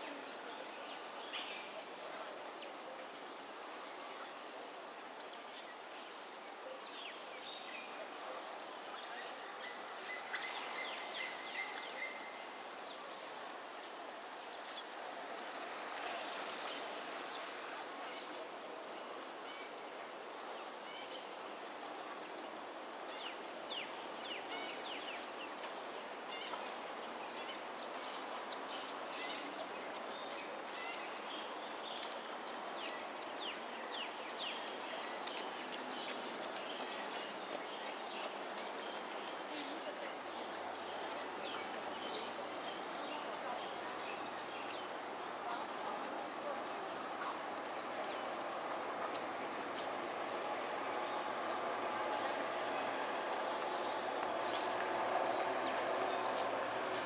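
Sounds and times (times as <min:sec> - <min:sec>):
background noise: 0:00.0 - 0:57.0
insects droning: 0:00.0 - 0:57.0.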